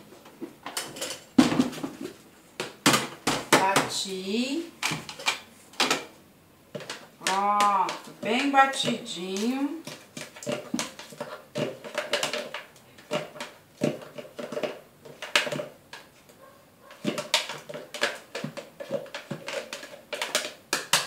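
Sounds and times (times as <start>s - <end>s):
spatula scraping plastic blender jar: 6.8s - 15.7s, 16.9s - 21.0s.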